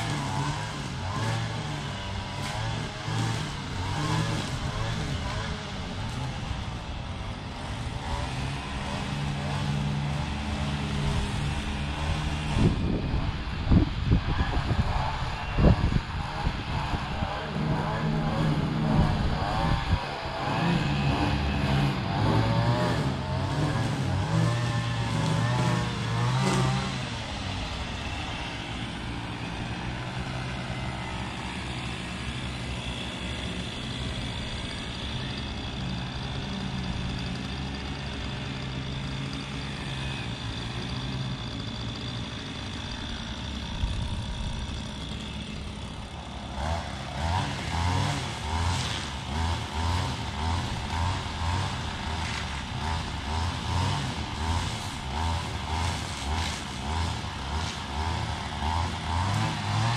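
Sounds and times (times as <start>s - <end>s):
small petrol engine running: 0.0s - 59.9s.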